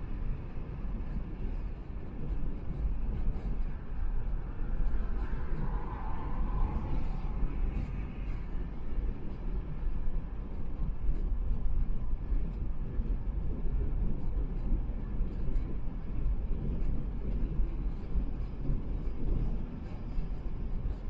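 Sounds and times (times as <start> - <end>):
tyre and road noise: 0.0 - 21.0.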